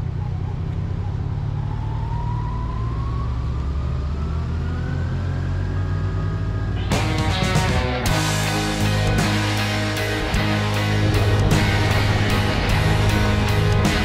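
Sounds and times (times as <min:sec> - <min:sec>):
rising engine whine: 0:00.0 - 0:14.0
motorcycle engine: 0:03.6 - 0:14.0
music: 0:06.8 - 0:14.0.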